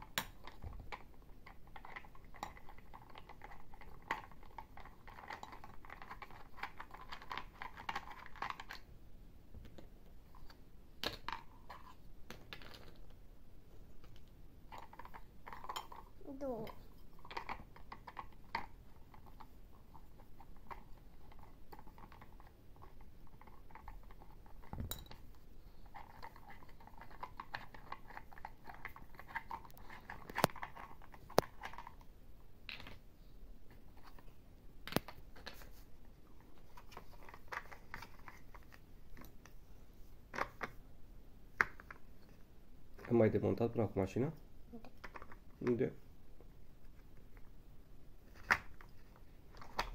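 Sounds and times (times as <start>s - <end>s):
plastic toy parts clicking: 0.0s - 8.9s, 14.0s - 19.5s
plastic scraping and rattling: 25.9s - 32.0s, 34.9s - 39.4s.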